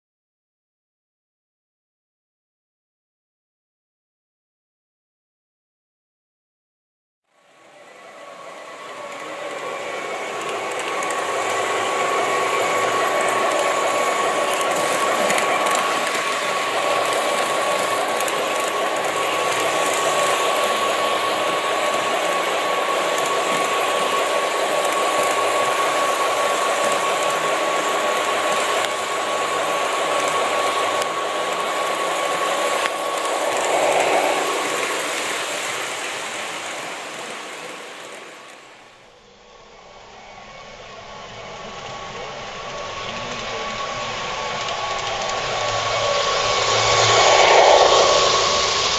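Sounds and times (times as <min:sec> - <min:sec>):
model train whine: 0:07.3 - 0:48.9
model train motor whirring: 0:07.7 - 0:38.8, 0:41.5 - 0:48.9.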